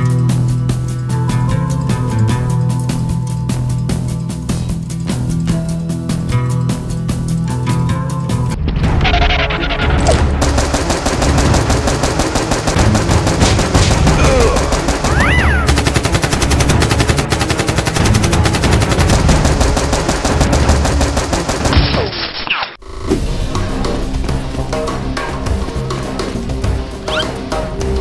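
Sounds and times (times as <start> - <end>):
automatic gunfire: 10.4 - 22.0.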